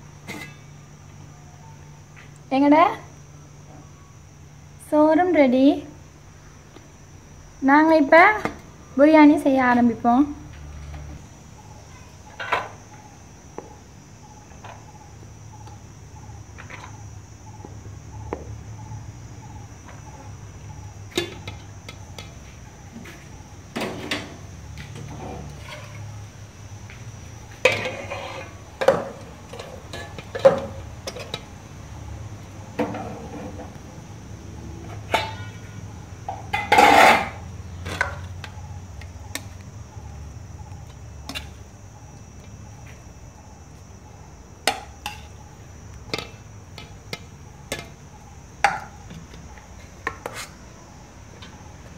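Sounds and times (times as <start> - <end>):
metal spoons scraping pots: 0.3 - 0.7, 27.6 - 31.4, 36.5 - 37.4.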